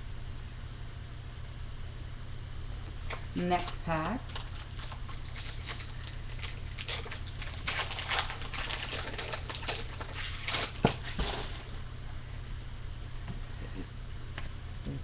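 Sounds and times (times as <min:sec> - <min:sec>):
foil wrapper crinkling and tearing: 0:03.1 - 0:11.7.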